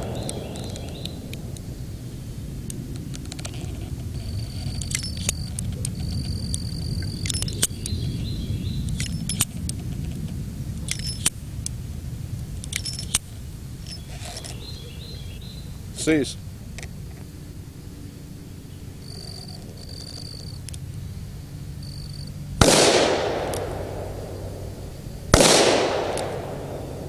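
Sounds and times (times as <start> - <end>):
revolver metallic clicks: 0.0 - 1.7, 2.6 - 8.2, 8.8 - 11.8, 12.6 - 14.7, 21.8 - 24.6, 25.3 - 27.0
low outdoor rumble: 0.0 - 27.0.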